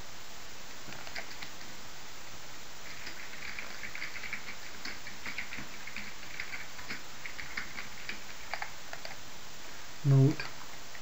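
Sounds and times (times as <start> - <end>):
steady hiss: 0.0 - 11.0
keyboard typing: 0.9 - 1.7, 2.8 - 9.2.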